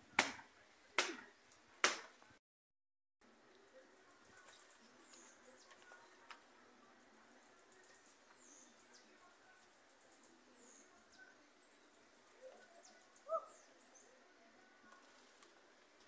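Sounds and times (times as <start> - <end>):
high bird chirps: 10.0 - 14.1
low bird call: 12.3 - 13.9.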